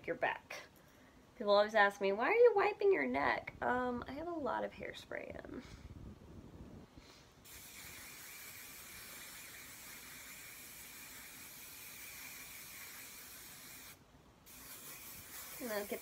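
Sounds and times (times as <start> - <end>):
hairspray can hissing: 7.4 - 16.0.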